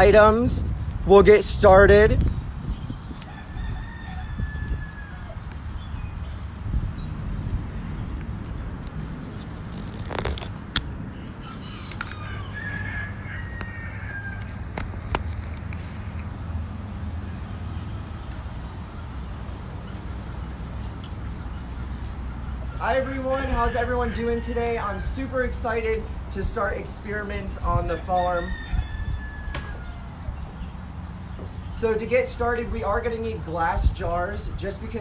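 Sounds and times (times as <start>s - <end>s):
birds calling: 2.2s - 7.2s, 9.2s - 14.7s, 17.2s - 33.6s.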